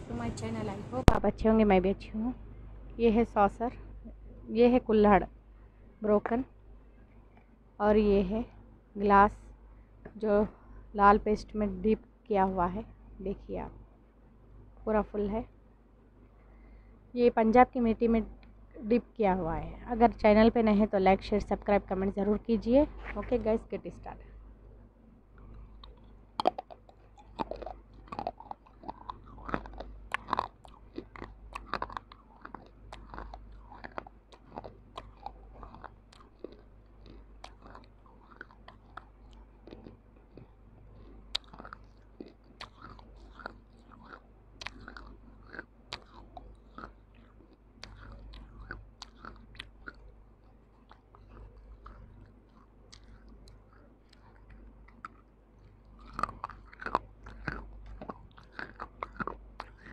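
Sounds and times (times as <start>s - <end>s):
mouth chewing: 25.3s - 59.9s.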